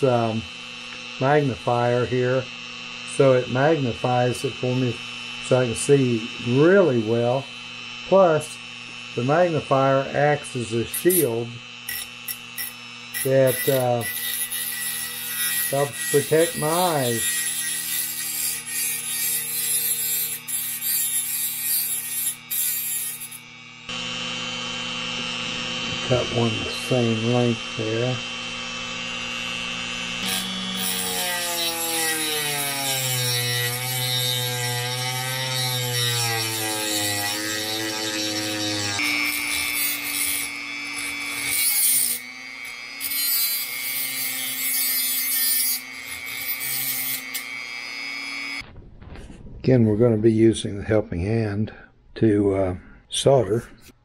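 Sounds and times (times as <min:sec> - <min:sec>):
rotary tool grinding metal rod: 0:01.2 - 0:23.6, 0:30.1 - 0:48.6.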